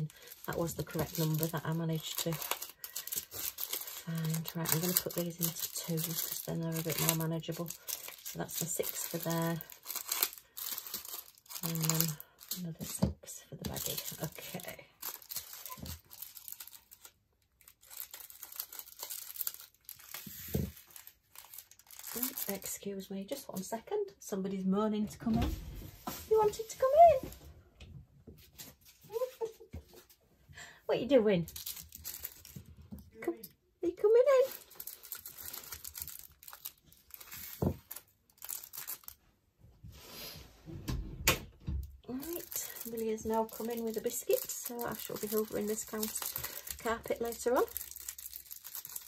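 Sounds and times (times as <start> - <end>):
plastic packets crinkling: 0.0 - 23.1, 31.4 - 32.9, 34.1 - 39.2, 42.0 - 49.0.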